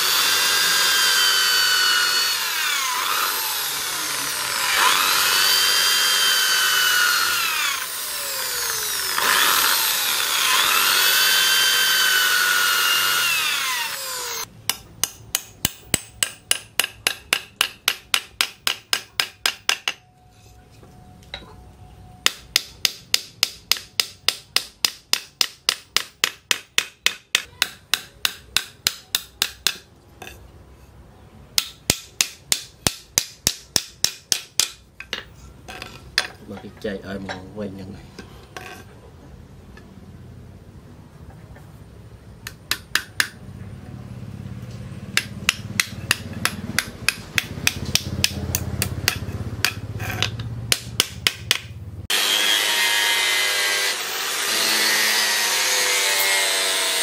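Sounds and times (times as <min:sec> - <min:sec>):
electric drill boring through wood: 0:00.0 - 0:14.5, 0:52.1 - 0:57.0.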